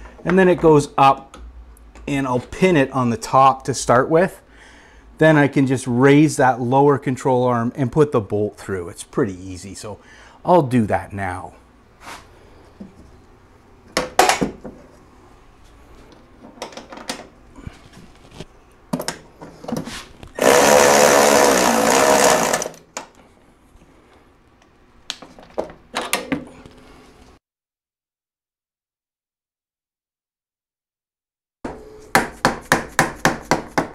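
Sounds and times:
power ratchet running: 20.4s - 22.8s.

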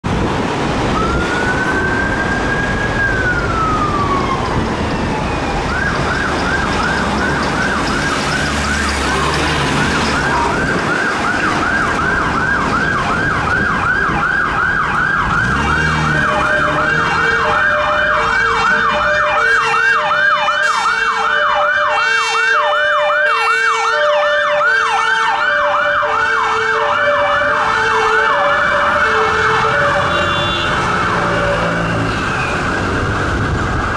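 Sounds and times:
road traffic: 0.0s - 33.9s
ambulance siren wail and yelp: 0.6s - 33.9s
two-tone air horns: 27.7s - 32.3s.

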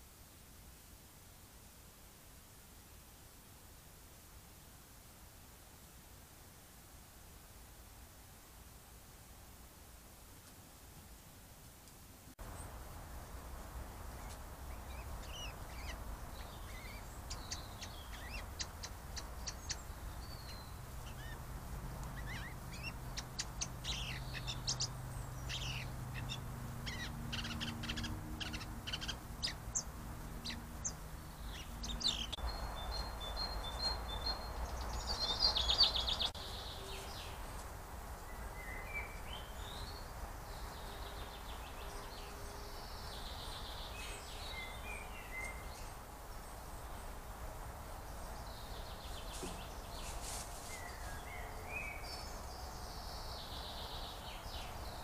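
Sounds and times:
songbirds chirping: 10.3s - 55.0s.

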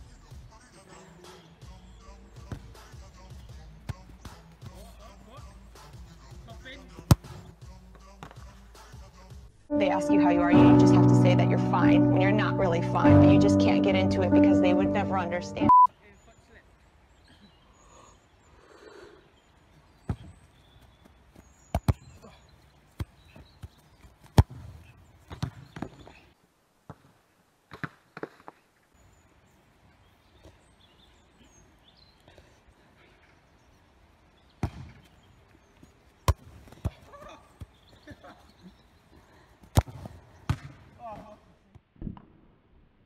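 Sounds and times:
football kick thuds: 2.4s - 2.8s, 3.8s - 4.8s, 7.0s - 7.5s, 21.7s - 22.1s, 24.3s - 26.0s, 34.6s - 35.1s, 39.6s - 41.2s.

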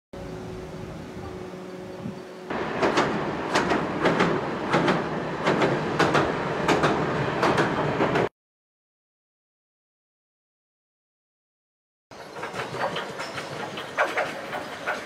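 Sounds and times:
tram rumbling over a bridge: 0.2s - 8.3s, 12.1s - 15.0s
wheels clacking over rail joints: 2.5s - 8.3s, 12.1s - 15.0s.

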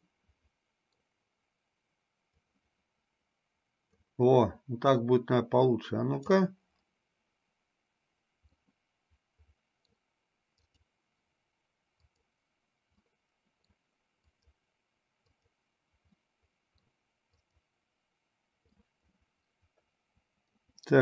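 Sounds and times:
mouse and keyboard clicks: 9.8s - 10.9s, 12.0s - 12.3s.

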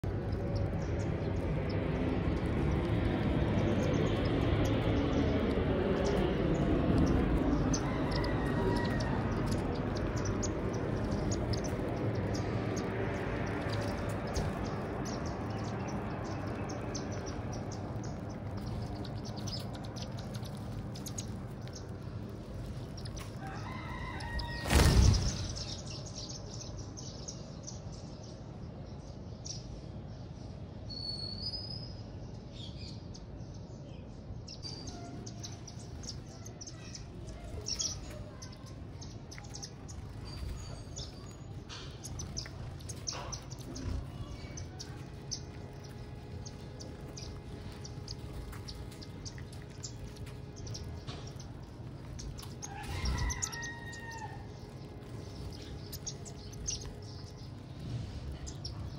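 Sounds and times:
birds chirping: 0.0s - 58.9s
low background hum: 0.0s - 58.9s
thump or flutter: 24.6s - 25.6s.

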